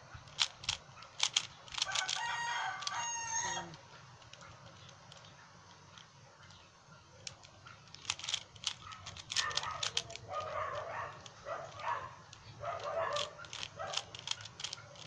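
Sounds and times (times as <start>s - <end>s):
puzzle cube clicks: 0.2s - 6.1s, 7.2s - 15.0s
rooster crowing: 1.8s - 3.8s.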